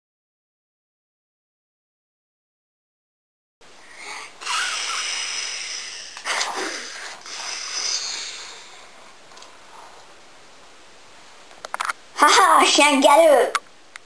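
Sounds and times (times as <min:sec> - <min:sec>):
person making hissing mouth noises: 0:03.8 - 0:09.2.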